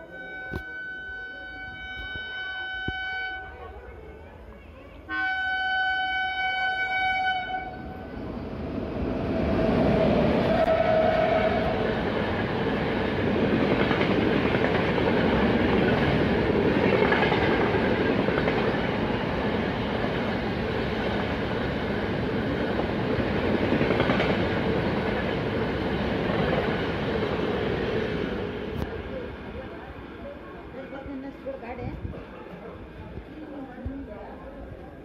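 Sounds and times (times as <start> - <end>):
train horn: 0.0 - 3.7, 5.1 - 8.0, 10.5 - 11.8
train passing at speed: 0.0 - 35.0.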